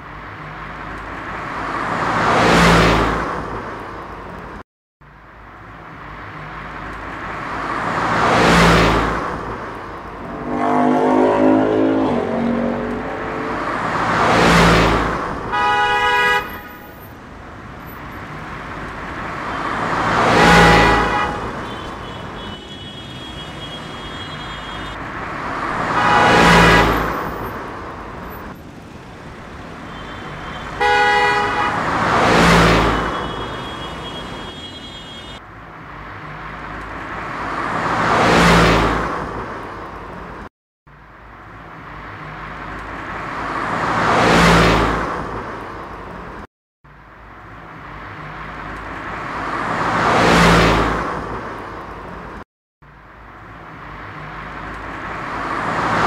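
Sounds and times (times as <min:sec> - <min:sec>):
cars passing: 0:00.0 - 0:56.0
car horn: 0:10.2 - 0:14.2, 0:15.5 - 0:17.1, 0:19.4 - 0:25.0, 0:25.7 - 0:27.6, 0:29.7 - 0:35.4.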